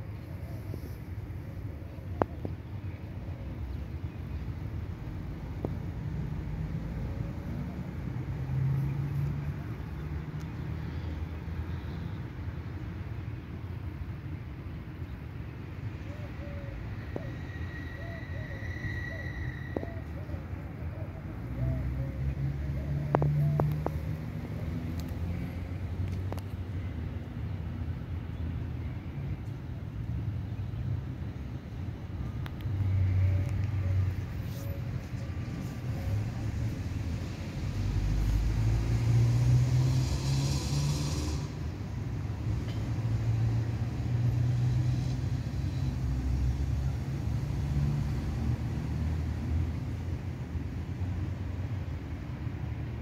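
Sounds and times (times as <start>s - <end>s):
low engine hum: 19.8s - 53.0s.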